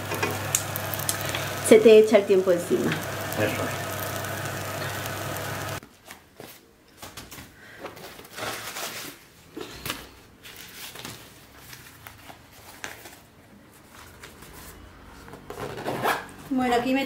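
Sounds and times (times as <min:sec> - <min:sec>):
frying sizzle: 0:00.0 - 0:05.8.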